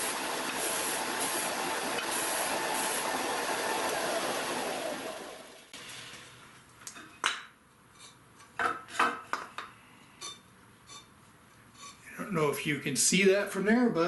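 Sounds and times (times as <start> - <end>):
power tool winding down: 0.0 - 5.7.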